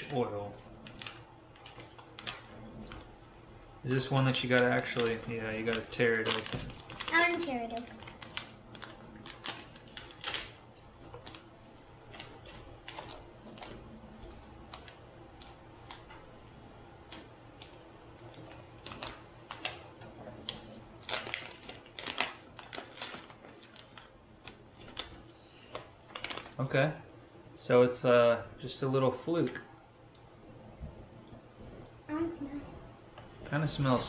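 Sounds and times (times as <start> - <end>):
plastic package crinkling: 3.9 - 16.1, 17.1 - 26.7.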